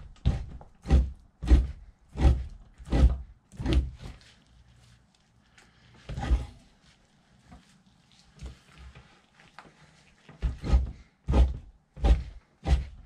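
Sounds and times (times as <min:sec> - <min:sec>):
knife scraping fat from hide: 0:00.2 - 0:04.2, 0:10.4 - 0:13.0.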